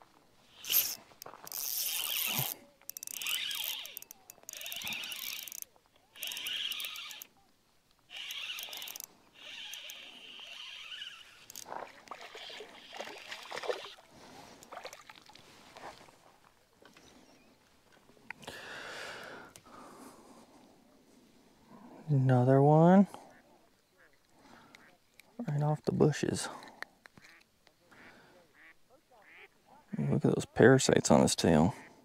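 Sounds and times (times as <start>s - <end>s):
fishing reel cranking: 0.5s - 7.3s, 8.1s - 13.1s.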